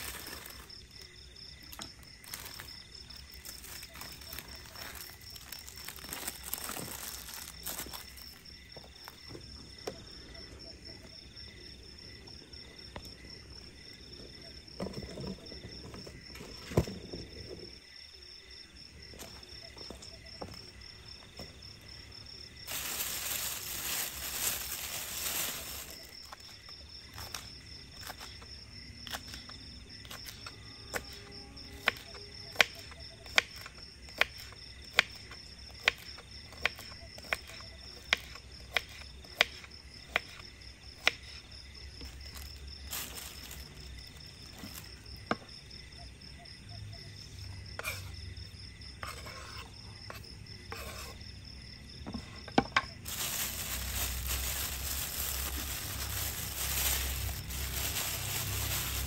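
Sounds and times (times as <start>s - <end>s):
high insect trill: 0.0s - 59.0s
rustling: 22.6s - 26.5s, 42.3s - 44.9s, 53.0s - 59.0s.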